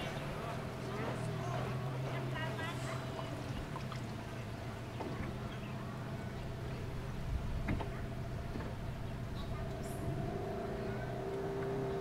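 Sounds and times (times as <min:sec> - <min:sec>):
engine droning: 0:00.0 - 0:12.0.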